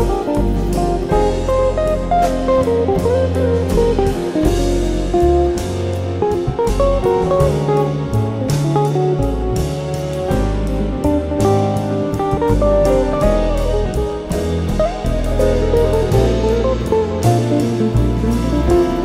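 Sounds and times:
guitar music with bass and beat: 0.0s - 19.0s.

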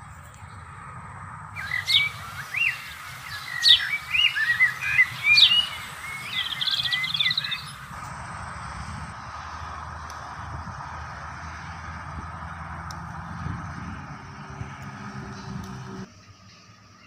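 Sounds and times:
songbird singing: 0.0s - 9.2s.

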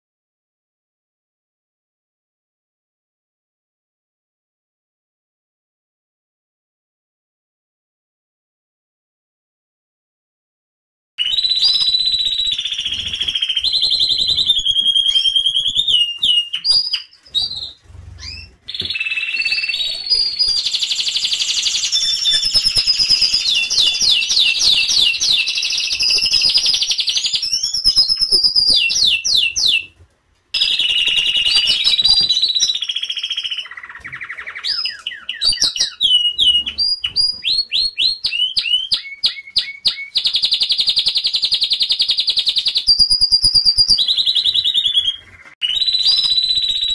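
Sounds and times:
canaries singing trills: 11.2s - 30.0s, 30.6s - 46.9s.

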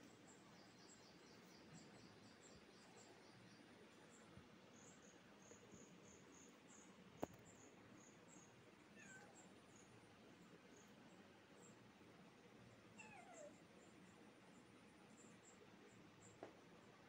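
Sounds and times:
faint high chirping: 0.0s - 10.0s, 13.0s - 16.5s.

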